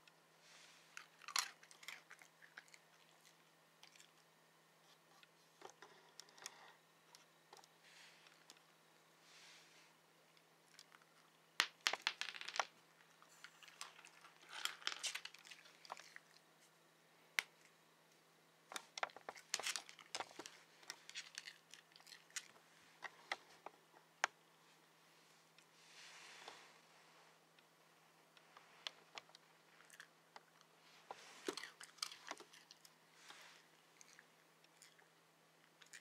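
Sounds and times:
soft crinkling: 0.0s - 16.8s, 17.4s - 36.0s
dog crunching a hard treat: 1.0s - 4.1s, 18.8s - 22.6s, 29.8s - 30.5s, 31.4s - 32.9s.

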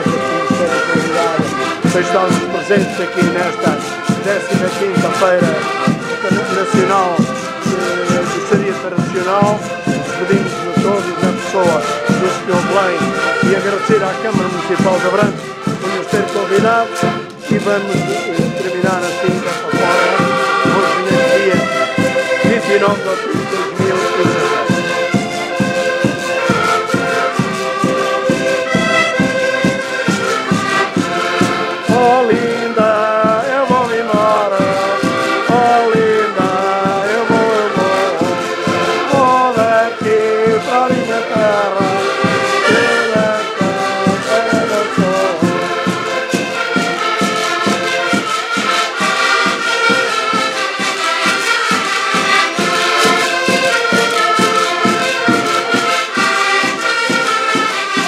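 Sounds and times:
bass drum beating: 0.0s - 22.6s
button accordions playing folk tune: 0.0s - 58.0s.

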